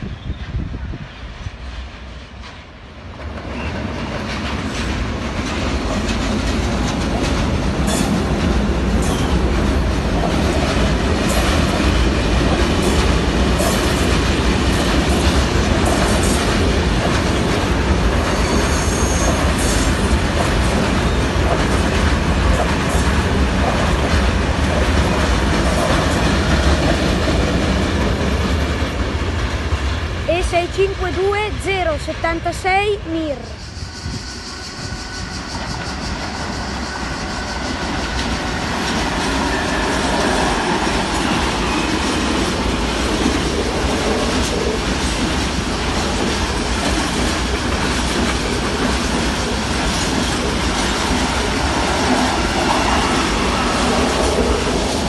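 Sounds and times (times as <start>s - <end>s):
train passing: 0.0s - 55.0s
wheels clacking over rail joints: 3.2s - 29.8s
high wheel squeal: 18.3s - 19.9s, 33.5s - 37.9s.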